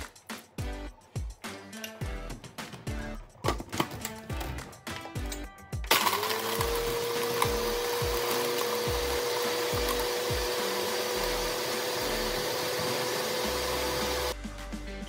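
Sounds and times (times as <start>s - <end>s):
background music with a beat: 0.0s - 15.0s
blender motor whining: 5.9s - 14.4s.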